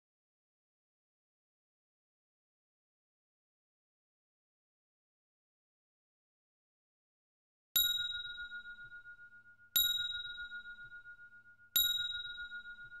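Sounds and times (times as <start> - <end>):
bell-like timer ding: 7.8 - 13.0.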